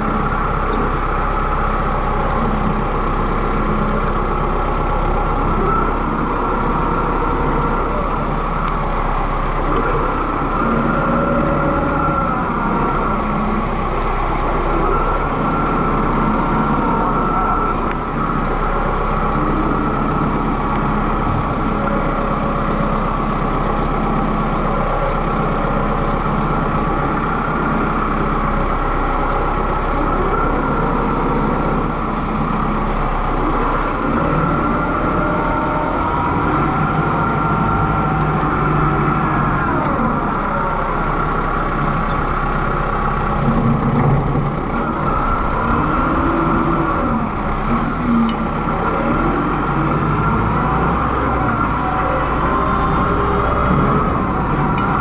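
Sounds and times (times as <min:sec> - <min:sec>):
faint wavering whine: 0:00.0 - 0:43.4
tractor diesel engine running: 0:00.0 - 0:55.0.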